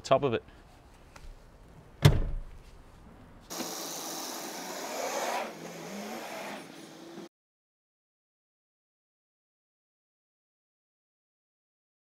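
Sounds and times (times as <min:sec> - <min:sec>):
seat back thumping into place: 0:02.0 - 0:02.5
outdoor hiss: 0:03.5 - 0:07.3.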